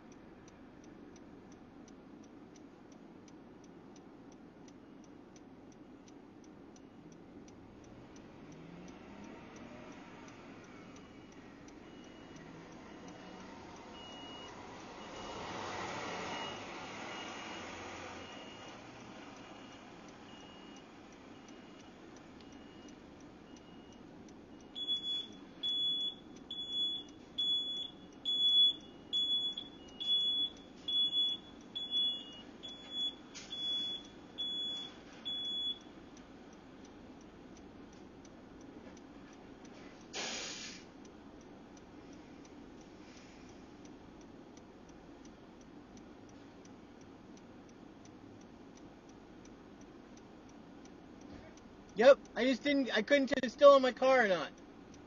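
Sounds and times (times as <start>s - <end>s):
faint steady ticking: 0.0s - 55.0s
car warning chime beeping: 8.2s - 15.5s, 16.2s - 36.0s.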